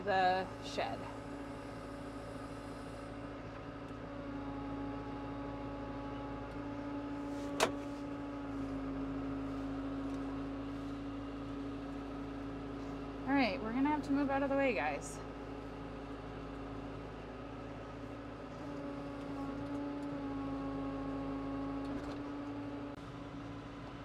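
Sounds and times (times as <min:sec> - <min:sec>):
tractor engine running: 0:00.0 - 0:24.0.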